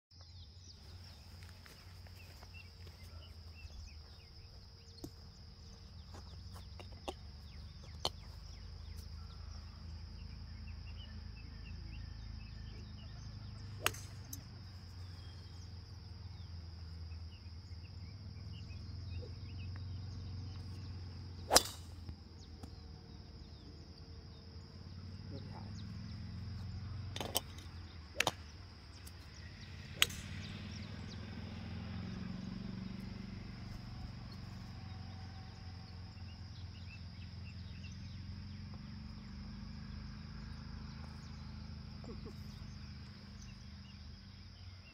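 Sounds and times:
high insect drone: 0.3s - 44.9s
faint golf club strikes: 13.8s - 14.4s, 21.4s - 22.0s, 30.0s - 30.8s
golf club striking ball: 13.8s - 14.4s, 21.4s - 22.8s, 27.2s - 28.6s, 29.9s - 30.8s.

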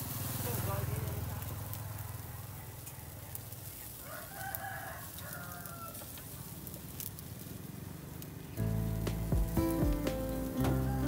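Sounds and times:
rooster crowing: 4.0s - 6.2s, 10.6s - 11.0s.

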